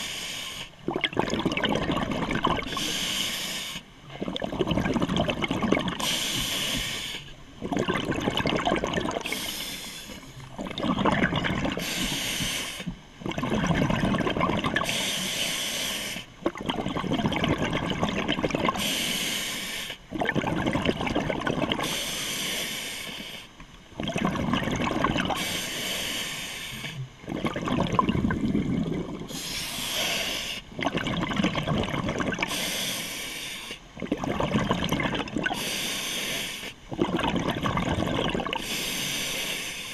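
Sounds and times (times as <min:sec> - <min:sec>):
regulator inhale hiss: 0:00.0 - 0:00.8, 0:02.7 - 0:03.9, 0:06.0 - 0:07.4, 0:09.2 - 0:10.4, 0:11.8 - 0:13.0, 0:14.8 - 0:16.3, 0:18.7 - 0:20.0, 0:21.8 - 0:23.6, 0:25.3 - 0:27.0, 0:29.3 - 0:30.7, 0:32.4 - 0:33.9, 0:35.5 - 0:36.8, 0:38.6 - 0:39.9
bubbling exhaust: 0:07.6 - 0:09.5, 0:13.2 - 0:15.0, 0:27.2 - 0:29.9, 0:30.8 - 0:32.7, 0:34.0 - 0:35.8, 0:36.9 - 0:39.0.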